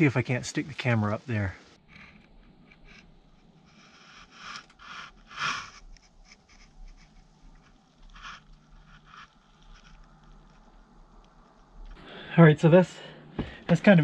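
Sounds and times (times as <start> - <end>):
scrapes against wood and debris: 3.7 - 12.0.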